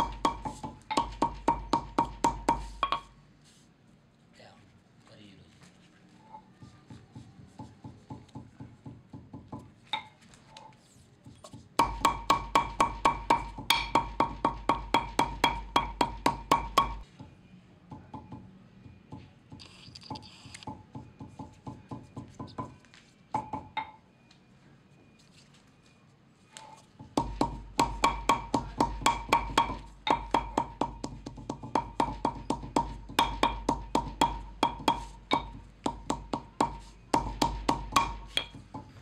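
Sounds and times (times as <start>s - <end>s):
hammer tapping on marble slab: 0.0s - 3.1s, 11.4s - 17.1s, 27.0s - 39.0s.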